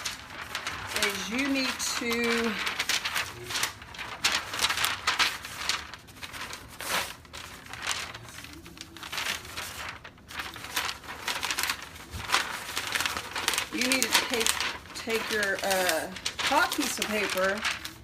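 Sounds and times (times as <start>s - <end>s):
paper rustling and crinkling: 0.0s - 18.0s.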